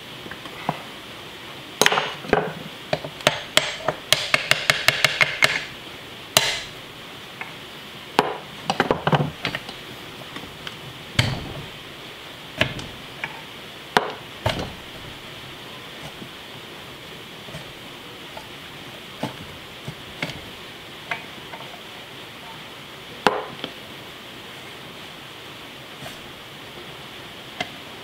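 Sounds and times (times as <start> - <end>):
hammer striking punch on metal: 6.4 - 6.7, 11.2 - 11.7.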